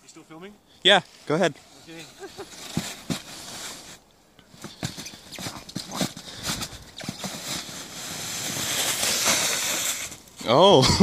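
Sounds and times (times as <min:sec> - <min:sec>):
plastic sled sliding over snow: 0:01.7 - 0:04.0, 0:04.6 - 0:11.0.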